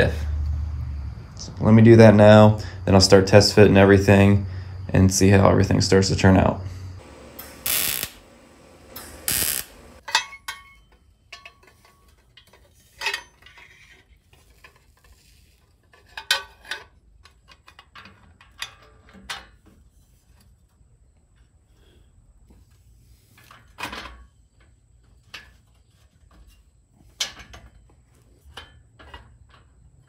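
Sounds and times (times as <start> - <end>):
welding hiss: 7.0 - 10.0
metal pipes clinking: 8.9 - 15.1.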